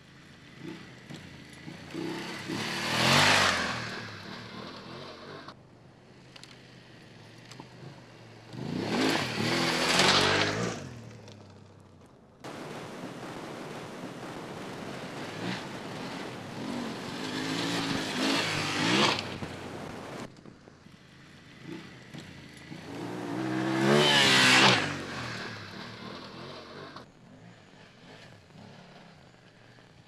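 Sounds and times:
motorcycle engine revving past: 0.6 - 5.6, 8.5 - 11.6, 15.1 - 19.8, 21.6 - 29.8.

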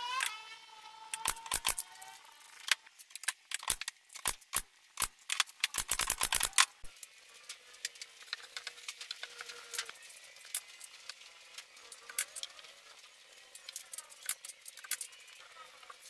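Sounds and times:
sharp irregular clicks and knocks: 1.1 - 1.8, 2.5 - 6.9, 13.6 - 15.2.

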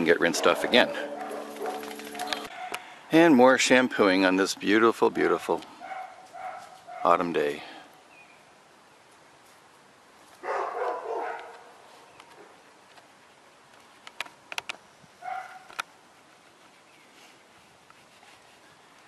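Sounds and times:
dog barking: 0.3 - 2.8, 5.8 - 7.2, 10.4 - 11.7, 15.2 - 15.7.

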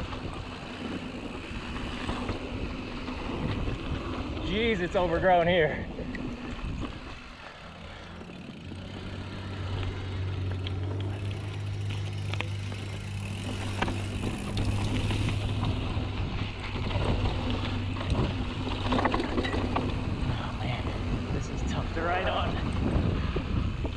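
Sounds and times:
bike tyres on dirt: 0.0 - 23.9
steady bike hum: 0.0 - 23.9
bike knocks and rattles: 7.9 - 23.9.

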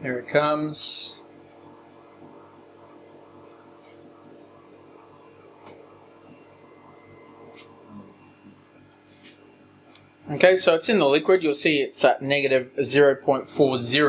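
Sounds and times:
stepper motor hum: 0.0 - 8.9.

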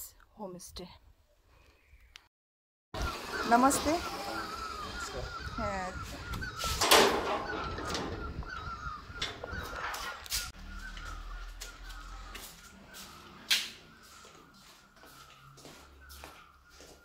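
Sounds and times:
gate and door clicks and knocks: 6.8 - 8.2.

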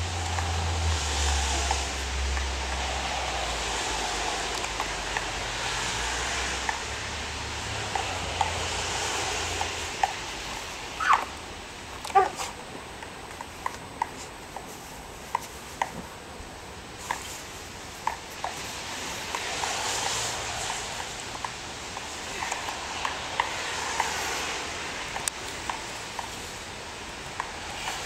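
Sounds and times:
rushing noise with low rumble: 0.0 - 12.9, 14.8 - 28.0
dog yelping: 11.0 - 11.4, 12.0 - 12.6.

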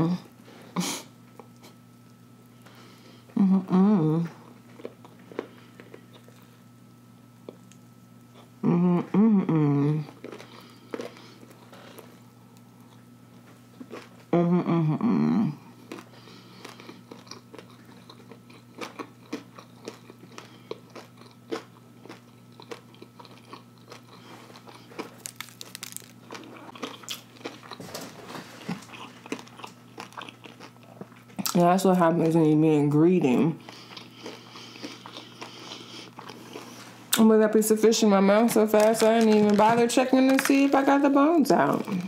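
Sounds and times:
chewing crunchy fried food: 1.1 - 3.4, 4.2 - 8.6, 10.0 - 14.3, 15.7 - 32.6, 33.3 - 37.2, 38.7 - 42.0
person humming mm: 3.3 - 4.4, 8.6 - 10.2, 14.3 - 15.8.

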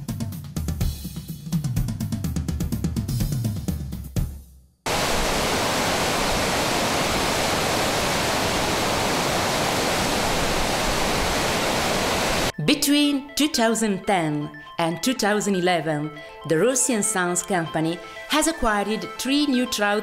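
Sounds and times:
music with drum beat: 0.0 - 4.6
whitewater rushing over rocks: 4.9 - 12.5.

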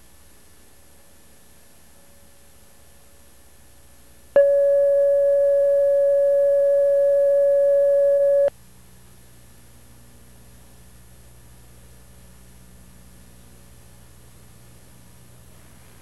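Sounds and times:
steady line-up tone: 4.4 - 8.5.

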